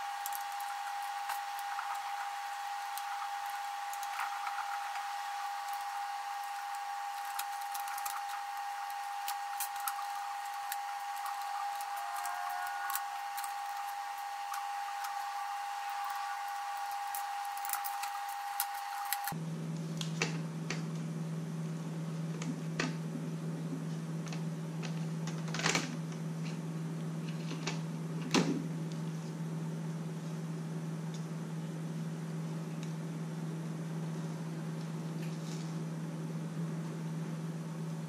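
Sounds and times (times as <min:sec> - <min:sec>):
high-pitched whine: 0:00.0 - 0:19.4
low steady hum: 0:00.0 - 0:38.0.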